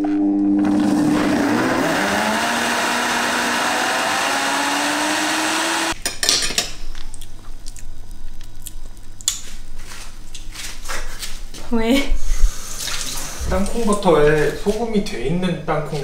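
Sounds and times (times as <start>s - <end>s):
blender motor running: 0.6s - 6.0s.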